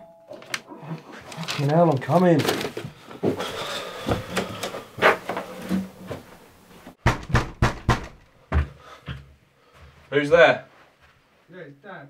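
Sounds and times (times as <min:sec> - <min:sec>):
bedding rustling: 0:01.0 - 0:07.0
footsteps down wooden stairs: 0:02.8 - 0:10.0.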